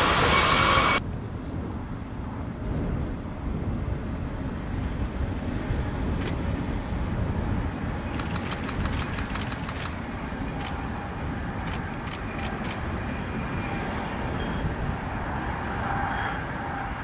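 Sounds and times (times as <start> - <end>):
train wheels clicking on rails: 8.1 - 10.0.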